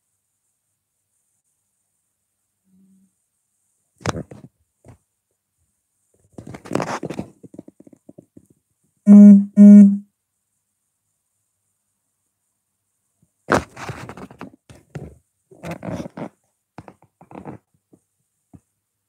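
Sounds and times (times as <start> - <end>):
rustling and light ticking: 4.0 - 9.0, 13.1 - 18.8
low steady tones: 9.1 - 10.0.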